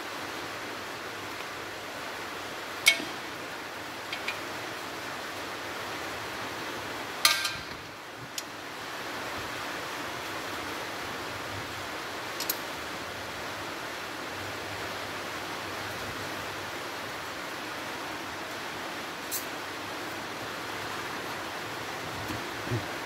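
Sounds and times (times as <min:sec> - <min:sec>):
steady hiss: 0:00.0 - 0:23.0.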